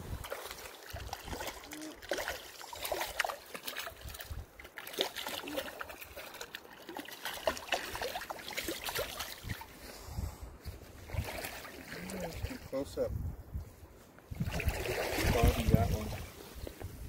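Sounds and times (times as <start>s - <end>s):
fish splashing in shallow water: 0.1s - 9.8s, 11.0s - 12.7s, 14.4s - 16.3s.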